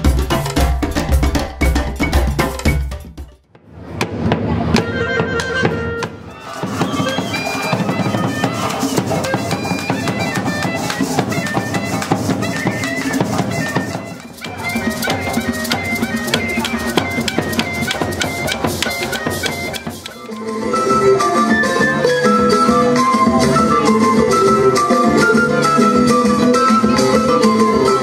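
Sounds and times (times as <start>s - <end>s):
clarinet melody: 4.8s - 28.0s
maracas: 6.2s - 28.0s.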